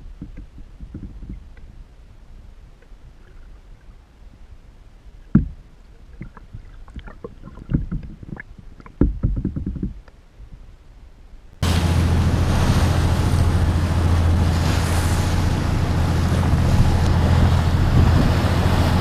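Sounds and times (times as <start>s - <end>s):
muffled underwater rumble: 0.0s - 10.8s, 11.6s - 19.0s
dull knocks: 5.3s - 5.6s
underwater clicks: 5.3s - 10.2s.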